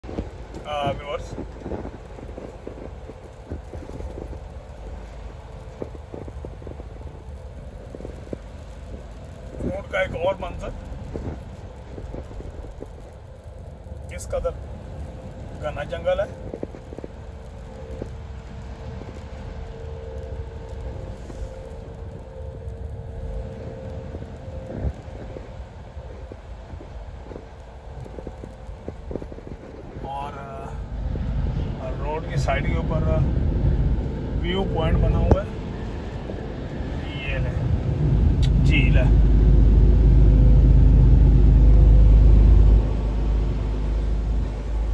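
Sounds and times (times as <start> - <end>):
raindrops tapping on windshield: 0.0 - 30.2
car road and engine rumble: 0.0 - 44.9
steady hum: 16.2 - 44.9.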